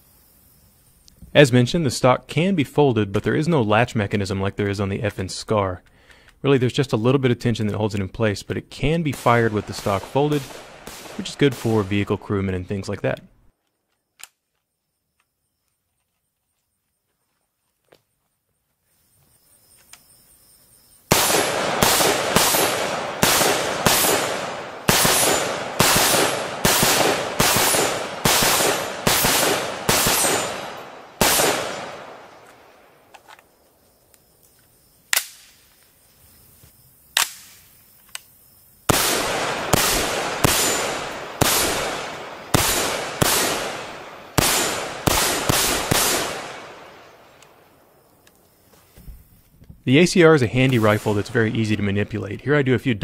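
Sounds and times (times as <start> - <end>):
rifle shots echoing: 8.8 - 12.5, 21.1 - 33.1, 38.9 - 47.8, 50.6 - 51.9.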